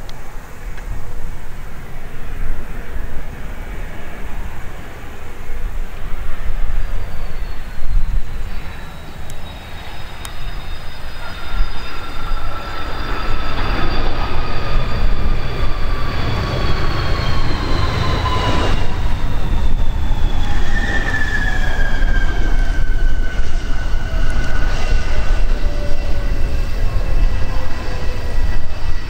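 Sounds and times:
jet engines whining: 0.0s - 29.0s.

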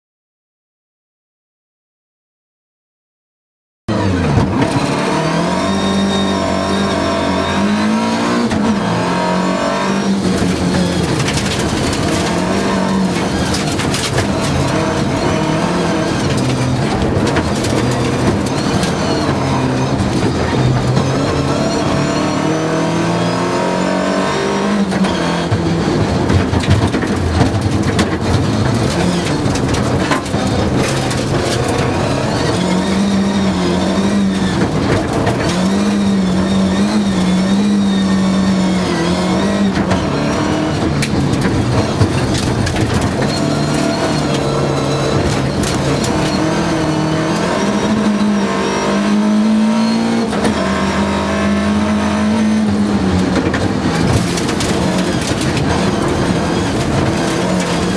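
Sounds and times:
rally car engine revving: 3.9s - 57.9s
knocks and rattles on gravel: 10.2s - 21.3s, 25.1s - 33.1s, 40.8s - 46.6s, 53.0s - 57.9s.

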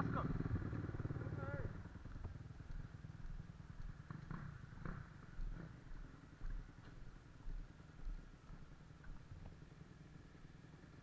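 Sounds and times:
dirt bike engine idling: 0.0s - 11.0s
soft footsteps and scuffs: 2.6s - 9.6s.

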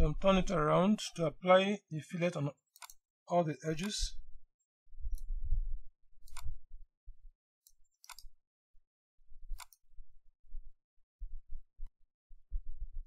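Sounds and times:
computer mouse clicking: 2.8s - 3.0s, 6.2s - 6.5s, 7.6s - 8.3s, 9.5s - 9.8s
faint low rumble: 4.0s - 7.3s, 9.2s - 13.0s.

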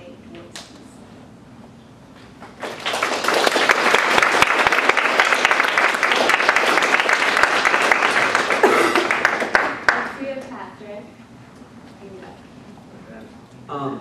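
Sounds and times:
audience applauding: 2.6s - 10.2s.

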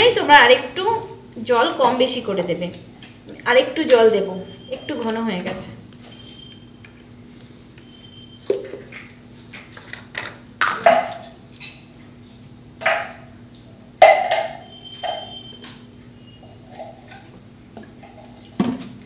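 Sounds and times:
clicks and knocks of bottles: 10.1s - 11.4s.

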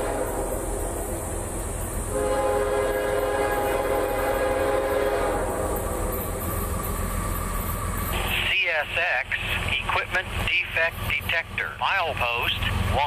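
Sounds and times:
locomotive air horn blast: 0.0s - 1.1s, 2.1s - 5.9s
train rumbling: 0.0s - 13.0s.

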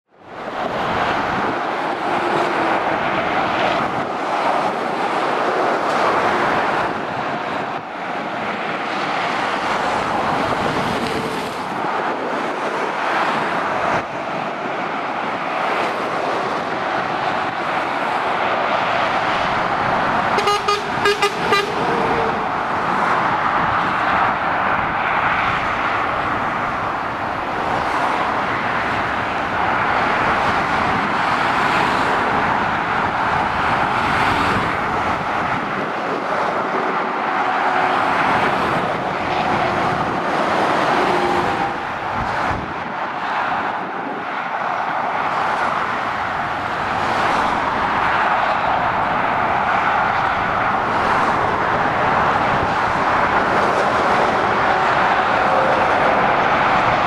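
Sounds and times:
motorway traffic: 0.0s - 57.0s
vehicle horn short toots: 20.4s - 21.8s.

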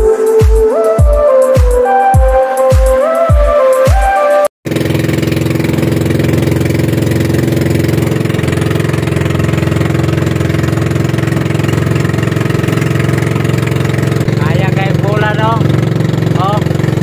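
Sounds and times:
boat engine droning: 4.7s - 17.0s.

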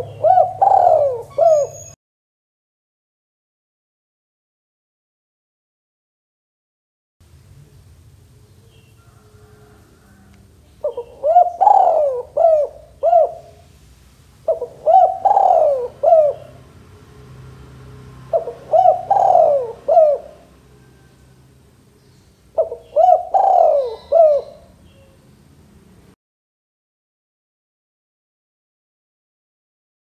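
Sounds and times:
dove cooing: 0.0s - 2.0s, 9.0s - 13.7s, 14.4s - 16.7s, 18.2s - 21.4s, 22.5s - 25.2s.

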